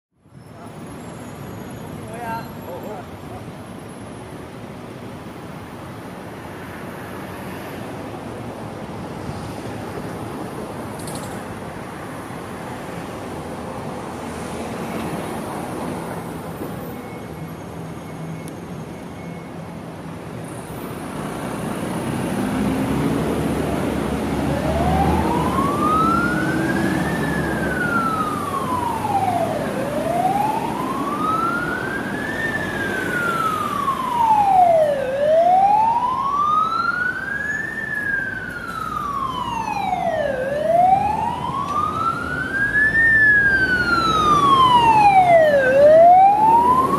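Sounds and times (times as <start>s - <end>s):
street noise: 0.1s - 46.9s
ambulance siren wailing: 23.0s - 46.9s.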